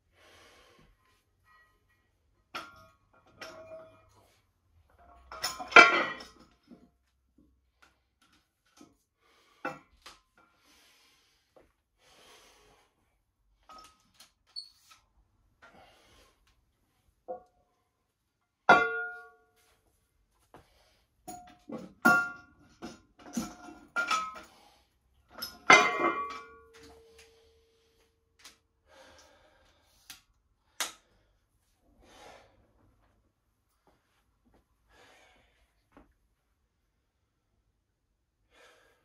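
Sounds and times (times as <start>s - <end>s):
weight plates clanking: 25.4s - 26.9s.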